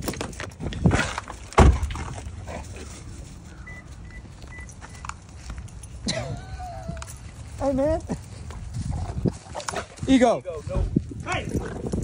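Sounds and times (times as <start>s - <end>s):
car door thump: 1.6s - 1.9s.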